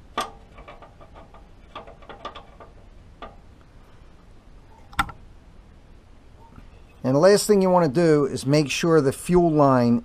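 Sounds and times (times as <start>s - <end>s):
hands clicking on fuel line fittings: 0.1s - 3.7s.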